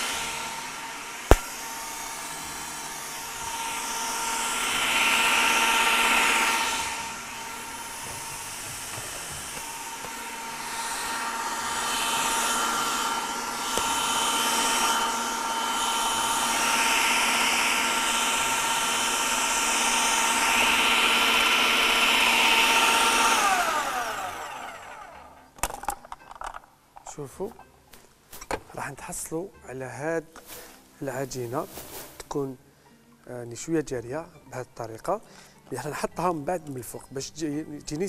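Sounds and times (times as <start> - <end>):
food processor motor whine: 0.0 - 25.8.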